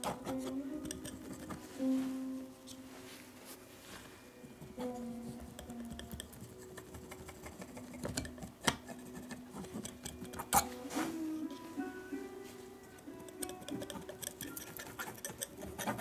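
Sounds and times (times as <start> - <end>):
palette knife tapping and scraping: 0.0 - 1.7, 4.5 - 10.8, 12.8 - 16.0
soft background music: 0.0 - 16.0.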